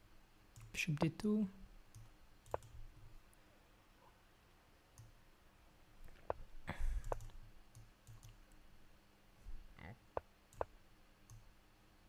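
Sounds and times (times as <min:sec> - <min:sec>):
computer mouse clicking: 0:01.9 - 0:02.8, 0:05.0 - 0:05.2, 0:07.0 - 0:08.6, 0:10.2 - 0:10.7, 0:11.3 - 0:11.5.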